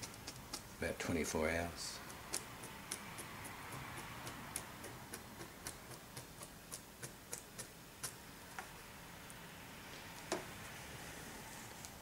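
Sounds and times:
toothpick ticking in wet gel: 0:00.0 - 0:00.7, 0:02.0 - 0:08.2.

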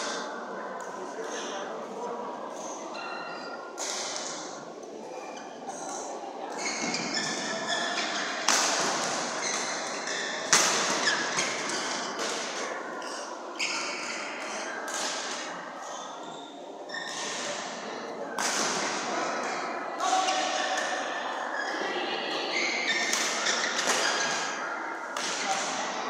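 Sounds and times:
shoe squeaks on court floor: 0:06.6 - 0:08.3, 0:15.9 - 0:17.6.

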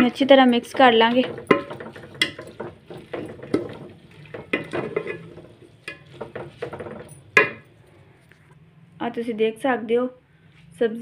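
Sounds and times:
spoon clinking against metal pot: 0:00.0 - 0:07.7.

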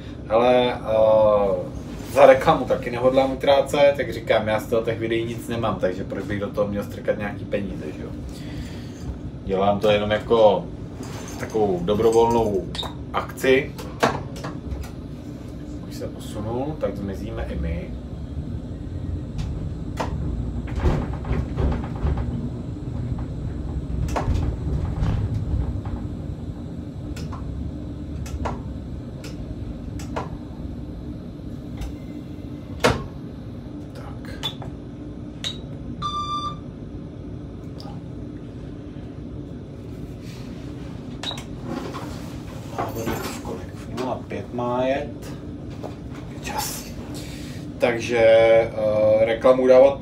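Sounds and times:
tram rumbling: 0:16.2 - 0:33.6
short high beep: 0:35.5 - 0:36.6.

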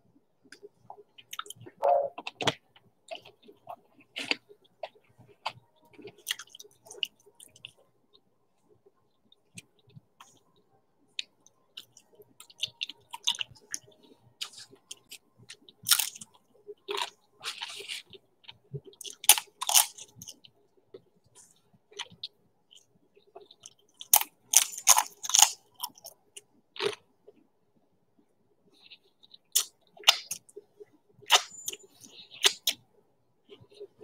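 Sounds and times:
person chewing crunchy snack: 0:00.6 - 0:07.8, 0:11.2 - 0:20.5, 0:21.4 - 0:26.2, 0:26.8 - 0:27.4, 0:28.8 - 0:30.5, 0:31.3 - 0:32.8.

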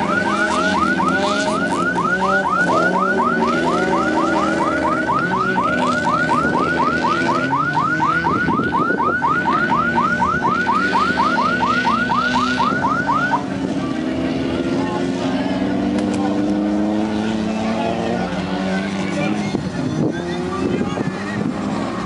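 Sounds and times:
car alarm rising chirps: 0:00.0 - 0:13.5
engines running steadily: 0:00.0 - 0:22.0.

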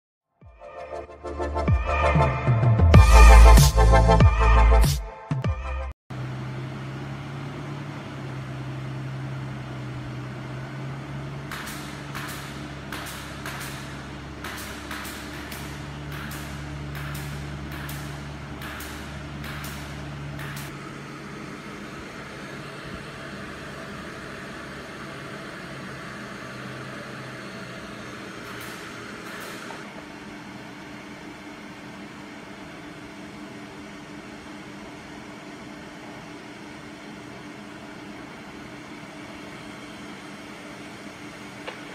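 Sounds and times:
router machine humming: 0:06.1 - 0:31.0.

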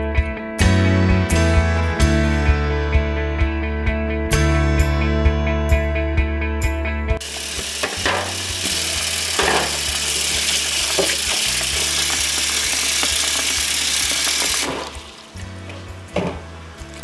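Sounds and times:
tap water running into bowl: 0:07.2 - 0:15.4.

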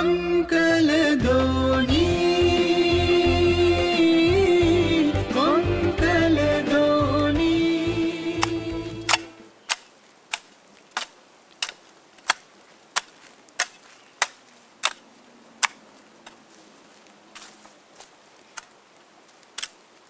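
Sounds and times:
theme music: 0:01.2 - 0:09.5
hoe chopping into soil: 0:08.4 - 0:15.0, 0:19.5 - 0:19.8.

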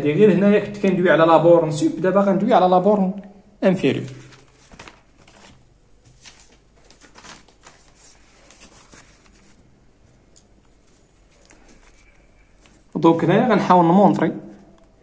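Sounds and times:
paper rustling: 0:03.8 - 0:13.0.

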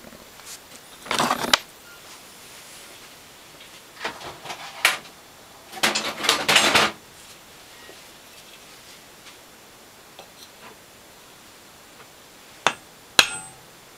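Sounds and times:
objects rustling and scraping on workbench: 0:00.4 - 0:09.4.

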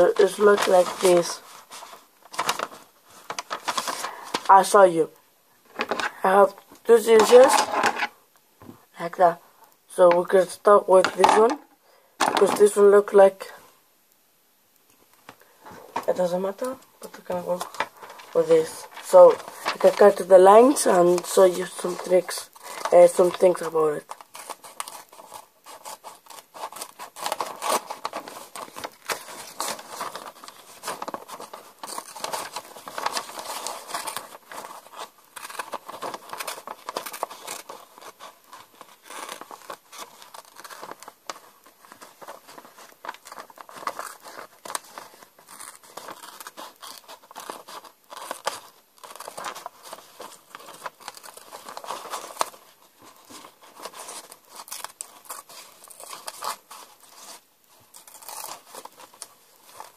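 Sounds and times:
paper rustling and crinkling: 0:00.0 - 0:04.8, 0:05.7 - 0:08.1, 0:12.2 - 0:13.0, 0:15.6 - 0:59.9
scissors snipping paper: 0:17.2 - 0:59.9.

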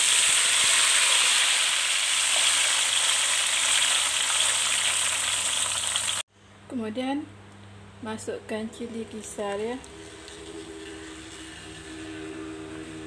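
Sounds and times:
paste sizzling in hot oil: 0:00.0 - 0:06.2.

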